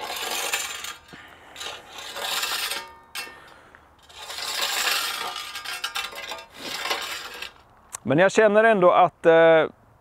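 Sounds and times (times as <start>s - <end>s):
scythe blade scraping gravel: 0.0s - 7.7s.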